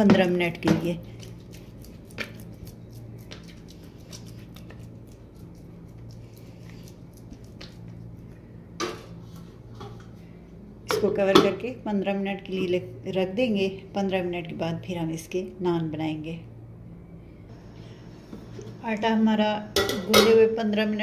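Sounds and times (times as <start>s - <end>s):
steady low hum: 0.0s - 21.0s
hands squishing oiled dough: 0.4s - 8.7s.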